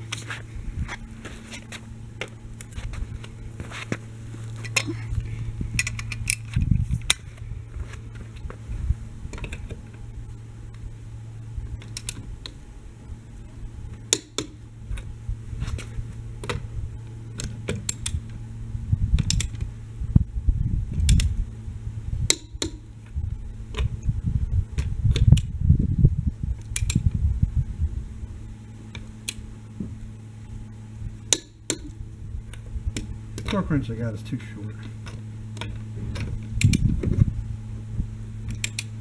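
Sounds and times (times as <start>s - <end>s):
low rumble: 0.0s - 39.0s
steady low hum: 0.0s - 39.0s.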